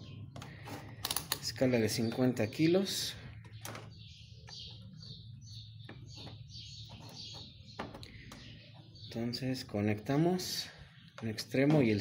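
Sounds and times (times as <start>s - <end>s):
small bird chirping: 0.0s - 12.0s
clicks of clips being handled: 1.0s - 1.5s.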